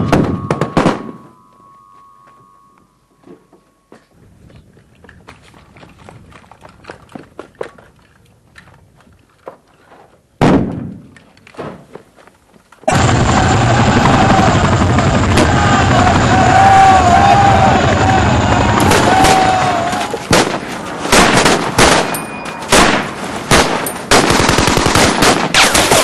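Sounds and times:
loud blast: 0:00.0 - 0:01.3, 0:12.9 - 0:26.0
gunfire pops: 0:10.4 - 0:11.1, 0:20.3 - 0:26.0
loud steady noise: 0:12.9 - 0:26.0.

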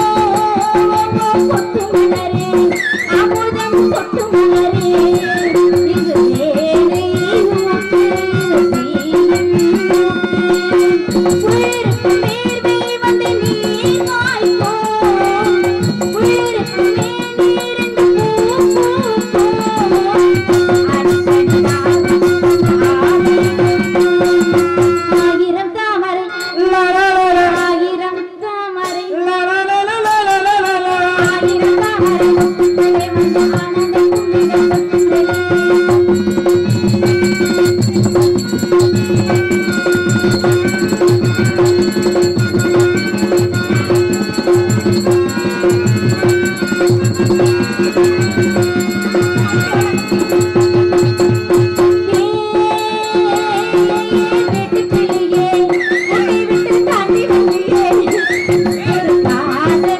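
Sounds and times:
hand drum beat: 0:00.0 - 0:25.6, 0:30.7 - 0:59.9
rattling percussion: 0:00.0 - 0:28.2, 0:28.8 - 0:59.9
person singing: 0:00.0 - 0:59.9.

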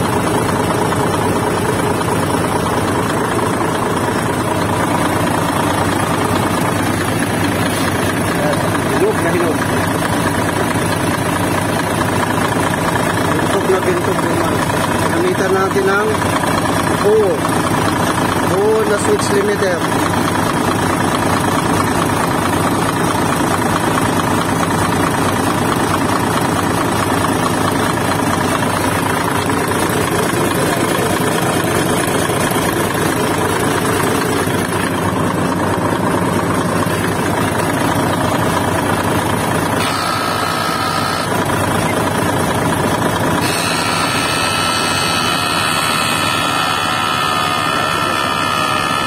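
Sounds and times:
truck diesel engine idling: 0:00.0 - 0:49.0
high-pitched whine: 0:39.8 - 0:41.4, 0:43.4 - 0:49.0.

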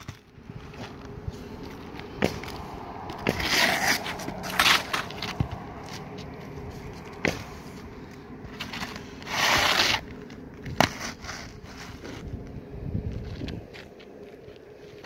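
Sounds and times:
knife scraping roof shingles: 0:02.1 - 0:06.0, 0:08.5 - 0:12.3.

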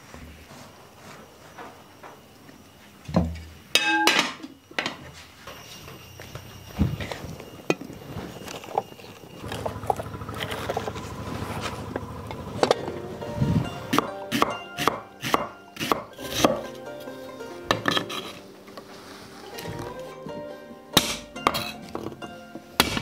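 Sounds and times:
background music: 0:12.6 - 0:23.0
cleaver chopping onion on wood: 0:13.9 - 0:16.7, 0:21.0 - 0:21.7, 0:22.8 - 0:23.0.

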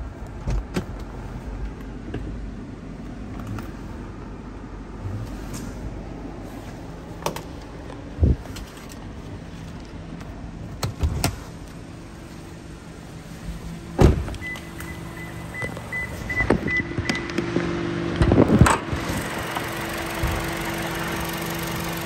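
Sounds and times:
car engine idling: 0:11.4 - 0:16.3, 0:18.9 - 0:22.0
car door shutting: 0:13.9 - 0:17.3.

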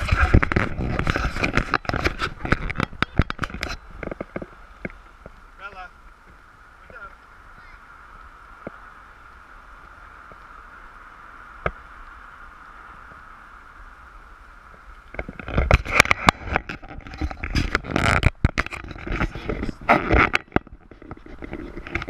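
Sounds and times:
camera rubbing against jacket: 0:00.0 - 0:04.6, 0:15.2 - 0:22.0.

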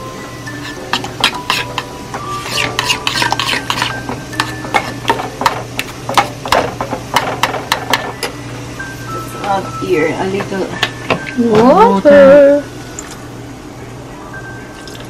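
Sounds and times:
metal spoon scraping saucepan: 0:00.5 - 0:05.2.

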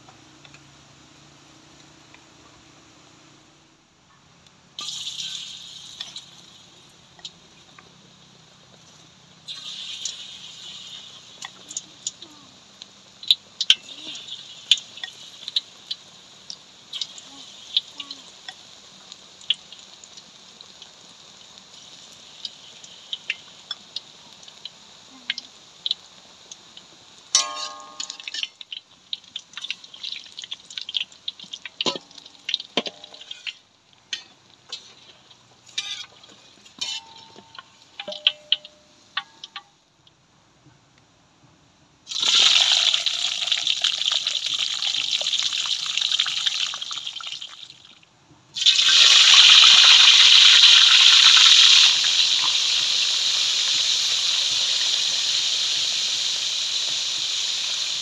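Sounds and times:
batter deep-frying in hot oil: 0:00.0 - 0:58.0
metal spatula ringing against wok: 0:27.4 - 0:28.6, 0:35.7 - 0:36.2, 0:36.8 - 0:39.7
spatula scraping through oil: 0:31.8 - 0:38.2.

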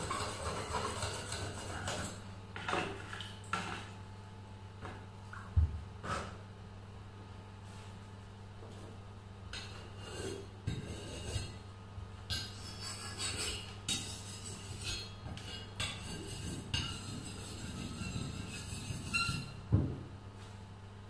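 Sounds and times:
knife scraping on sharpening stone: 0:12.3 - 0:19.6.

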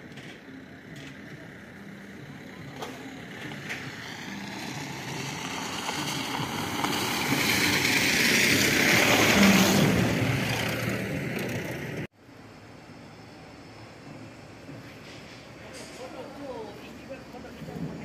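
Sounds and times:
motor vehicle passing: 0:01.1 - 0:12.1.

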